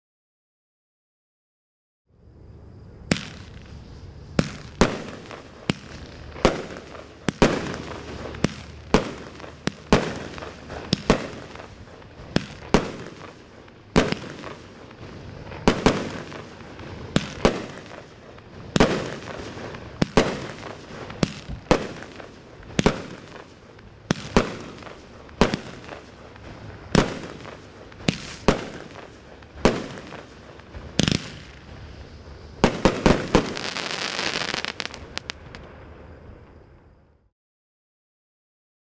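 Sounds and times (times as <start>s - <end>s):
firework hiss: 2.8s - 36.8s
firework bangs: 3.0s - 36.6s.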